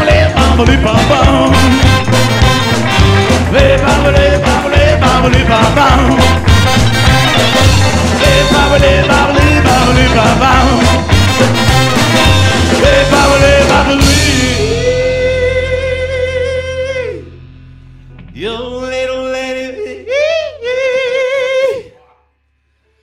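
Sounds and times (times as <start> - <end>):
rockabilly band playing: 0.0 - 17.4
person singing long high notes: 18.4 - 22.2.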